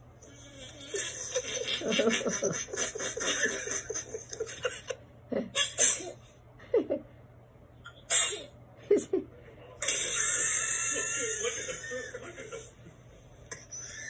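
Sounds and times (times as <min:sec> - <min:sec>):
elderly woman laughing: 0:00.8 - 0:05.5, 0:10.2 - 0:12.7.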